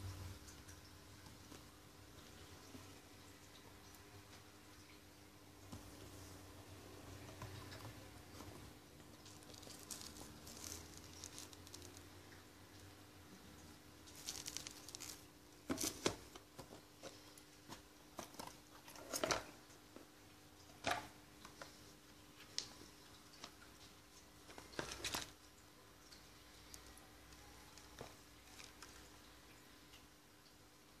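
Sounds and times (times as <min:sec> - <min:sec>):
plastic wrap and cardboard rustling: 0:09.2 - 0:12.1, 0:14.0 - 0:19.5, 0:24.5 - 0:25.4, 0:27.7 - 0:29.0.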